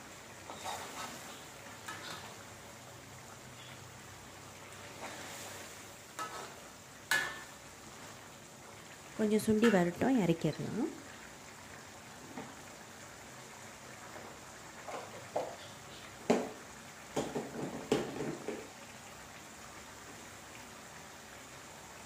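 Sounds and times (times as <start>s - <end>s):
faint hiss: 0.0s - 22.0s
sauce bubbles popping: 16.3s - 18.8s.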